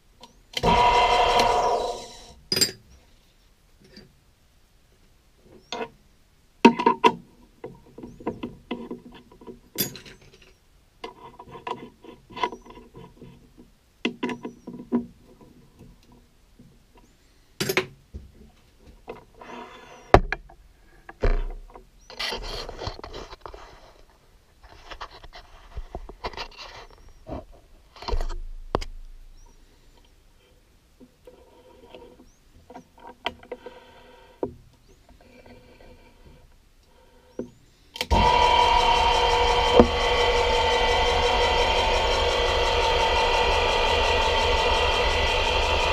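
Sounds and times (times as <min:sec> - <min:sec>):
scraping and rustling: 0:22.1 - 0:28.4.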